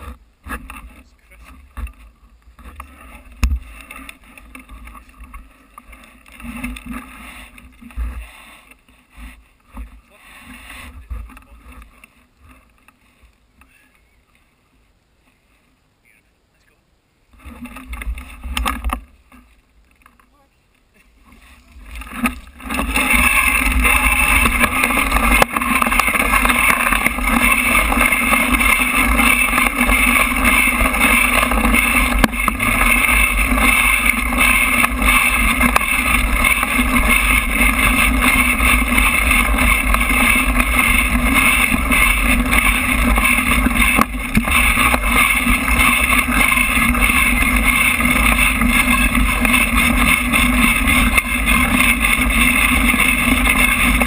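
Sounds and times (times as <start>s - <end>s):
tyre rumble: 21.0s - 54.0s
bike knocking over bumps: 21.8s - 54.0s.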